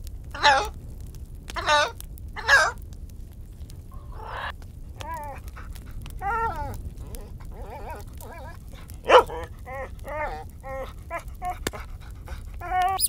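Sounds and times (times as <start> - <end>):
parrot screeching: 0.4 - 0.7, 4.1 - 4.5, 12.6 - 13.0
parrot high wavering calls: 12.6 - 13.0.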